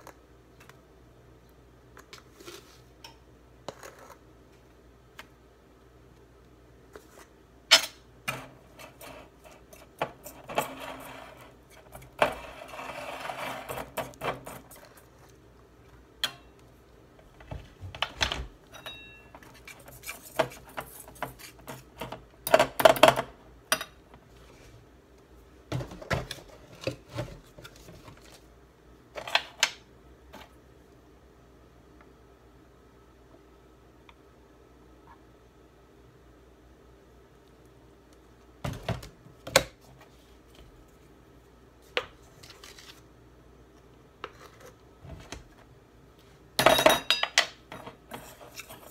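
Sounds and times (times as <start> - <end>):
whisk scraping metal bowl: 8.6 - 15.2, 48.1 - 48.9.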